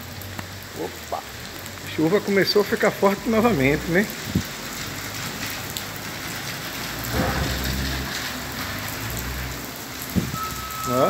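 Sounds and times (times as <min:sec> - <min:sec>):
heavy rain pouring: 0:00.0 - 0:11.0.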